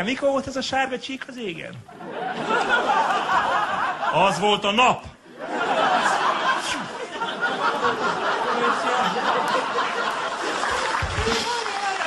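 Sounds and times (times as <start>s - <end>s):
audience laughing: 1.9s - 4.6s, 5.3s - 12.0s.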